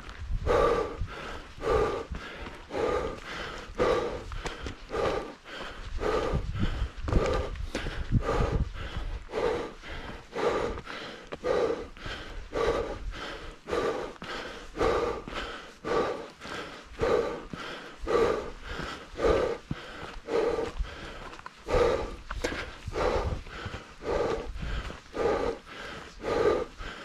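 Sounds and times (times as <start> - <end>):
person breathing heavily: 0.3 - 27.0.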